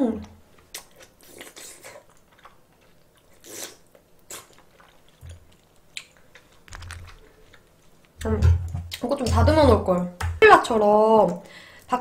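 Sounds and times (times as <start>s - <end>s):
person chewing food: 0.5s - 9.0s.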